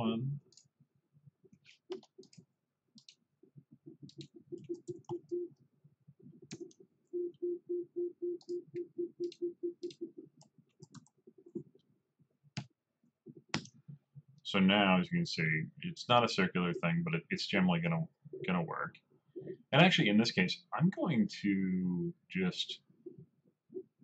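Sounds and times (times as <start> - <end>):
mouse and keyboard clicks: 1.6 - 3.2, 3.9 - 5.2, 6.4 - 6.8, 13.3 - 13.8.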